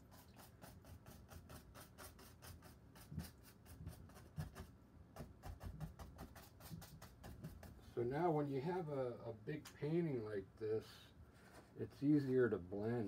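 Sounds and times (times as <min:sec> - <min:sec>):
brush scratching on canvas: 0:00.0 - 0:07.9.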